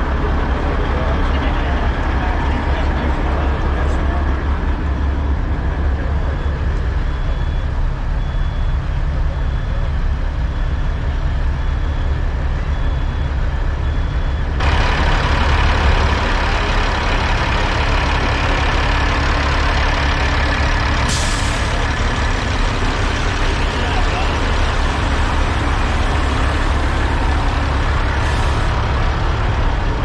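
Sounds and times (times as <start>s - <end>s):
diesel truck engines idling: 0.0s - 30.0s
faint repeating beep: 6.2s - 14.6s
air brakes hissing: 21.0s - 22.4s.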